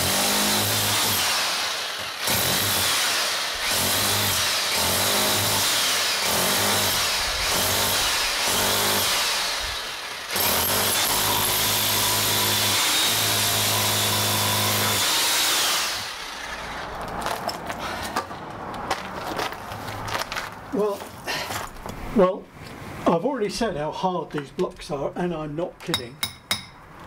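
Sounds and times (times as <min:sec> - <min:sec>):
hammer drill chiselling concrete: 0:00.0 - 0:16.9.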